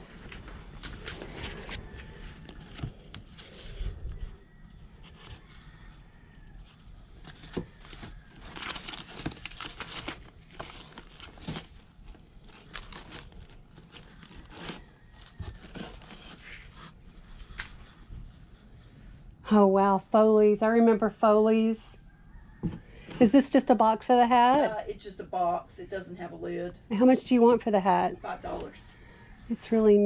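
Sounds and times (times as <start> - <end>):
paper and cardboard rustling: 0.0 - 5.9, 6.7 - 18.9.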